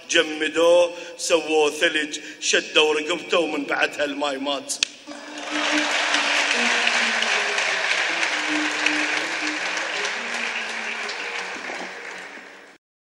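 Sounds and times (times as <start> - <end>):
audience applauding: 5.1 - 12.8.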